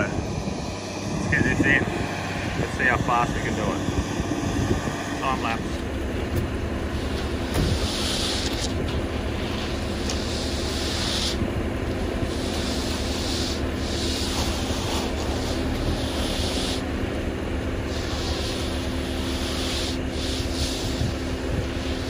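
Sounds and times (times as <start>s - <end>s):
truck engine droning: 0.0s - 22.0s
hiss: 7.0s - 8.7s, 10.1s - 11.4s, 12.2s - 16.9s, 17.8s - 22.0s.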